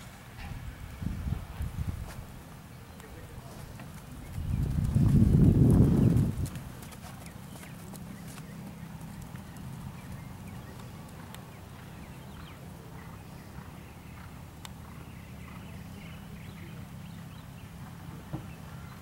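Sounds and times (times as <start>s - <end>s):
horse hoofbeats on sand: 3.4s - 15.7s.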